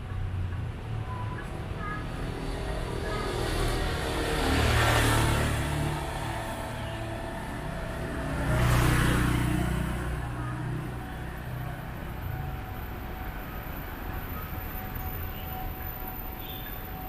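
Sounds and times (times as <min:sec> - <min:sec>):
motor scooter engine running: 0:02.3 - 0:13.3.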